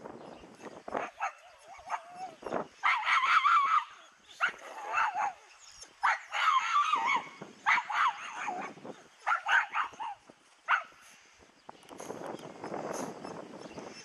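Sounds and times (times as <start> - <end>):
dogs yelping and whining: 0.6 - 10.8.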